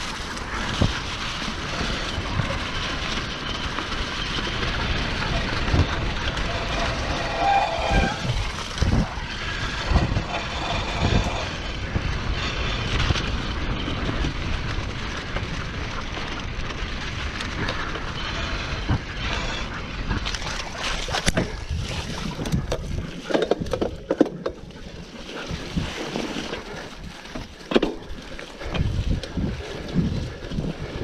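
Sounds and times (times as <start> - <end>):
bike jolting over bumps: 0.0 - 31.0
mountain bike rumbling and rattling: 0.0 - 31.0.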